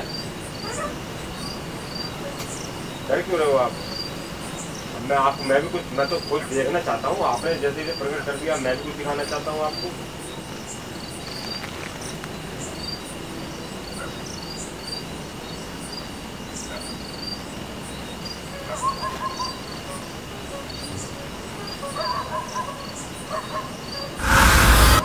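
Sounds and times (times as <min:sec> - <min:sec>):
crickets chirping: 0:00.0 - 0:18.5.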